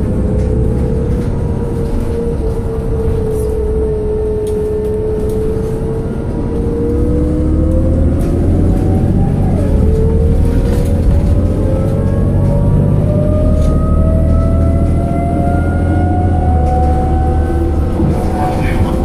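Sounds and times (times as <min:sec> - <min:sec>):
bus drivetrain rumble and whine: 0:00.0 - 0:19.0.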